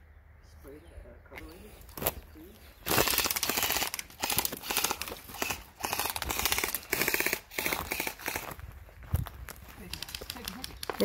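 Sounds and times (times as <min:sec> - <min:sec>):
airsoft rifle firing full auto: 0:02.9 - 0:08.4.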